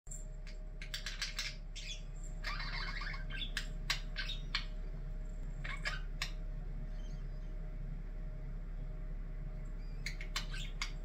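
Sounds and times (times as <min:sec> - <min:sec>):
budgerigars chirping: 0:00.5 - 0:04.8, 0:05.6 - 0:07.5, 0:09.7 - 0:11.0
budgerigar warbling chatter: 0:00.8 - 0:04.7, 0:05.6 - 0:06.4, 0:09.8 - 0:11.0.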